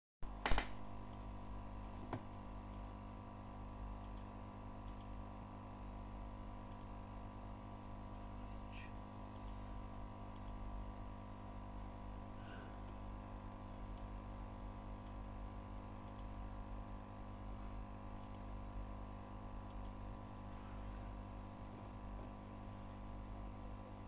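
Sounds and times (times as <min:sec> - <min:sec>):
click: 0:00.5 - 0:02.8, 0:04.0 - 0:05.2, 0:06.7 - 0:06.9, 0:09.3 - 0:09.6, 0:10.3 - 0:10.6, 0:13.9 - 0:14.1, 0:16.0 - 0:16.3, 0:18.2 - 0:18.5, 0:19.6 - 0:20.0.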